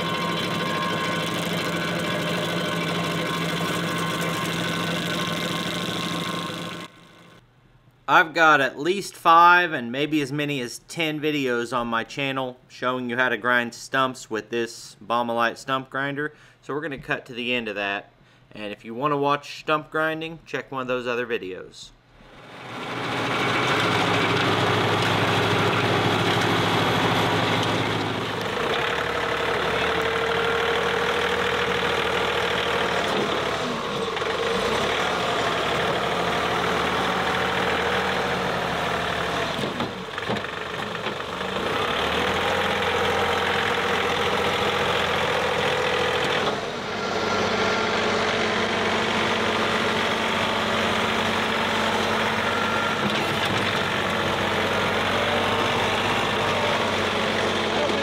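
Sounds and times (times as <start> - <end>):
tractor diesel engine running: 0.0 - 7.4, 22.4 - 58.0.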